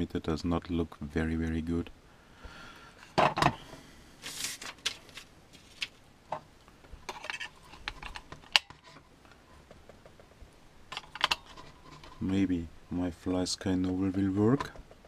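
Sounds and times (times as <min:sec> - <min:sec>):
brief rustle: 0:04.2 - 0:06.0.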